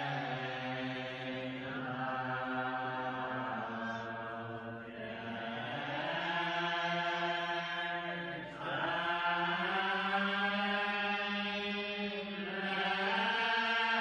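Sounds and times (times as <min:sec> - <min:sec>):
group singing a hymn a cappella: 0:00.0 - 0:14.0.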